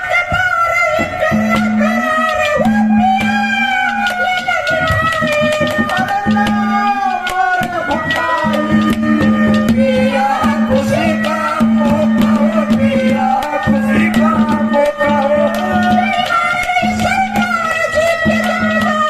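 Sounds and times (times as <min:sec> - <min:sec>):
man singing through loudspeakers: 0:00.0 - 0:19.0
steady drumbeat: 0:00.2 - 0:19.0.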